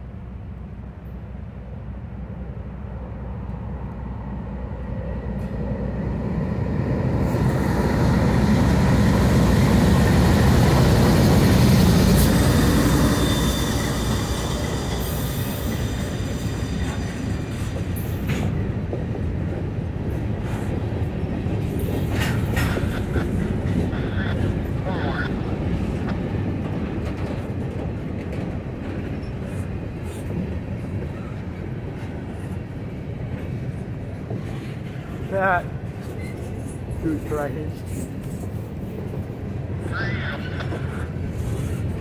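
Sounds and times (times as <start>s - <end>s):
diesel locomotive rumble: 0.0s - 42.0s
train wheels rumbling on rail: 0.0s - 42.0s
faint wheel squeal: 12.9s - 17.2s.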